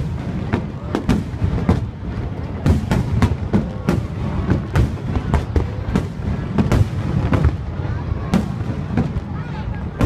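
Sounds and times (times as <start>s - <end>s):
fireworks bangs: 0.0s - 10.0s.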